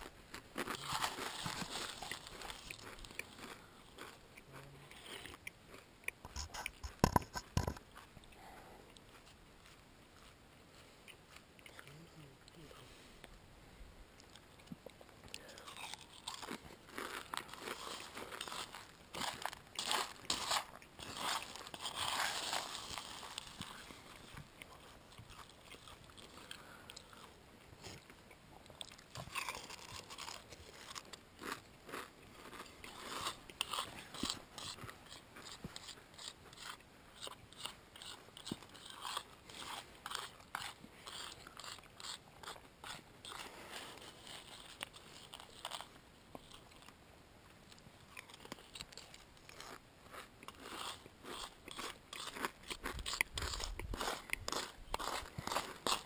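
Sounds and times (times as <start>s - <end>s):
crunching dry cereal: 0.0s - 4.2s, 15.4s - 27.3s, 28.8s - 47.0s, 48.1s - 56.0s.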